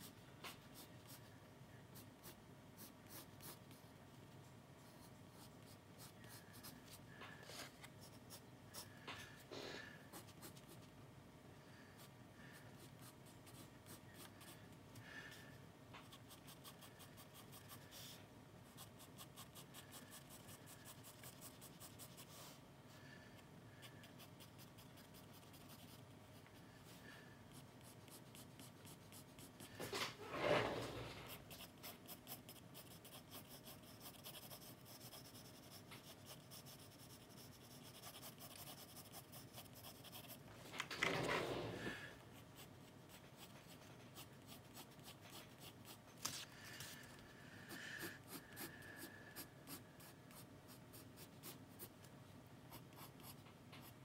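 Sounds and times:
pencil strokes on paper: 0:16.0 - 0:22.6, 0:23.8 - 0:40.5, 0:42.4 - 0:47.0.

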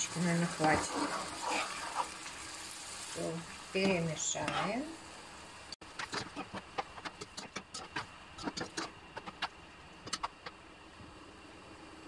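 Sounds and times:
spatula scraping a frying pan: 0:00.5 - 0:02.2, 0:04.4 - 0:04.9, 0:05.9 - 0:10.3.

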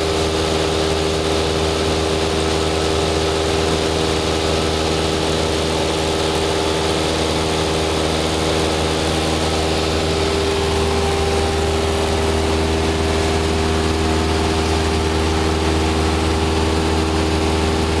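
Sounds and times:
light aircraft engine droning: 0:00.0 - 0:18.0.

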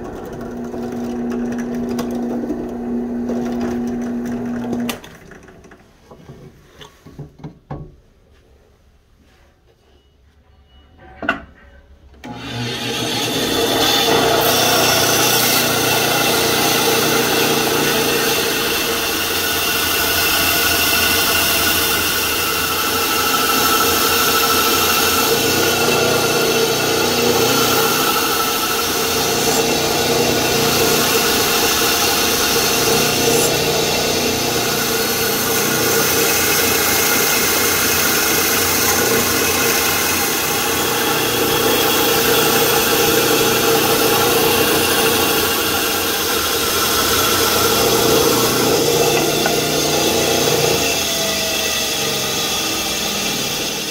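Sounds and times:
bandsaw cutting wood: 0:12.2 - 0:53.9.

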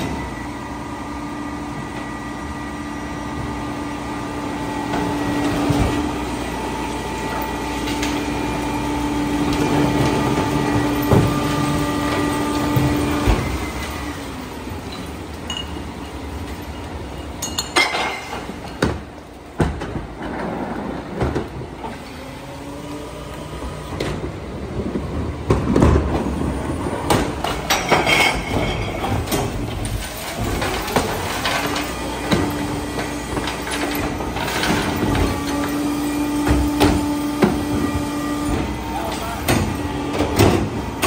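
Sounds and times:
garbage truck engine running: 0:00.0 - 0:41.0
trash carts clattering and knocking: 0:03.2 - 0:41.0.

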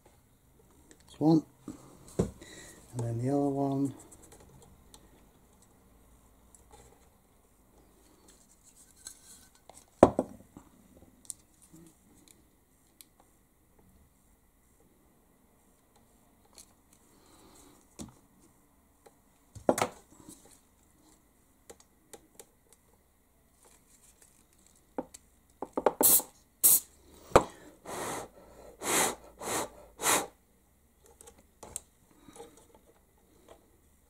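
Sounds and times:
aerosol spray bursts: 0:26.0 - 0:26.9.

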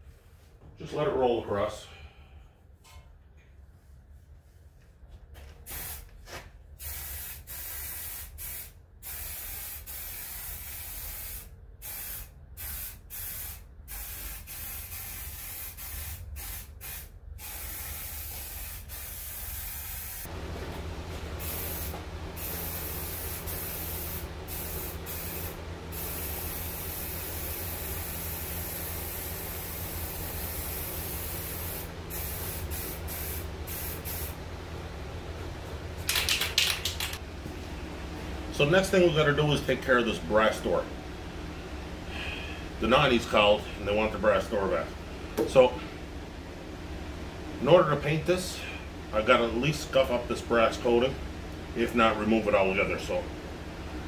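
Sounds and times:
steady low hum: 0:00.0 - 0:54.0
spray paint can hissing: 0:05.7 - 0:06.1, 0:06.8 - 0:20.3, 0:21.4 - 0:34.4.

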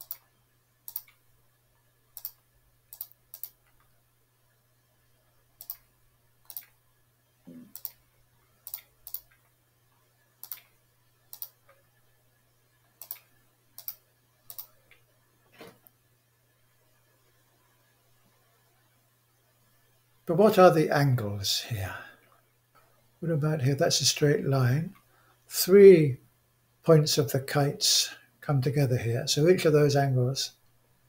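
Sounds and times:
computer mouse clicking: 0:00.0 - 0:00.3, 0:00.9 - 0:01.2, 0:02.2 - 0:03.9, 0:05.6 - 0:06.8, 0:07.5 - 0:08.0, 0:08.6 - 0:09.5, 0:10.4 - 0:10.7, 0:11.3 - 0:11.8, 0:12.9 - 0:15.1
faint low hum: 0:00.0 - 0:31.0.

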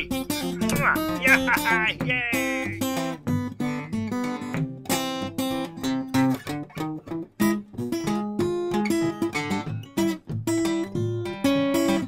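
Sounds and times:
acoustic guitar picked and strummed: 0:00.0 - 0:12.0.

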